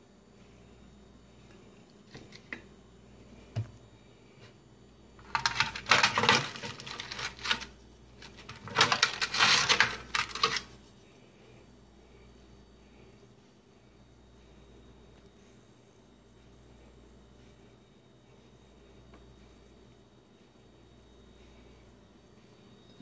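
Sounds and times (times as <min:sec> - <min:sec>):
foil crinkling and rattling: 0:05.2 - 0:10.8.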